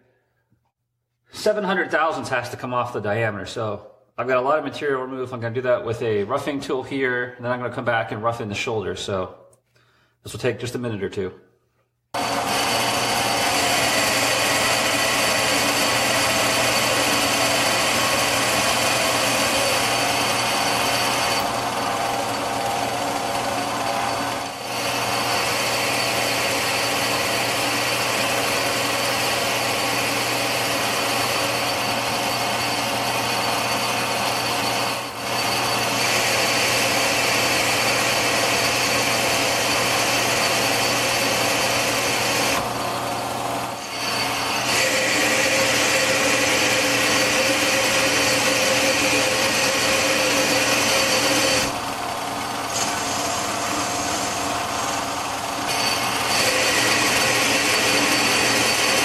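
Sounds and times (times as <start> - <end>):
lathe motor humming: 12.2 - 59.0
lathe tool cutting steel: 12.2 - 59.0.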